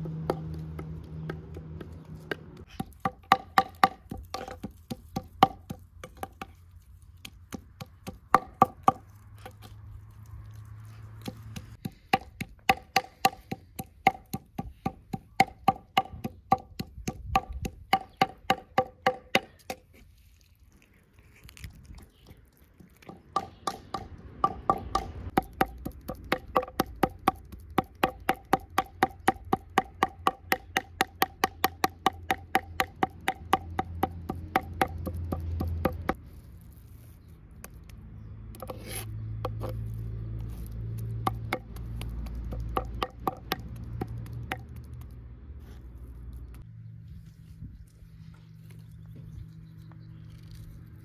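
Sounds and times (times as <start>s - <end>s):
rapid knocking on wood: 41.2s - 44.7s.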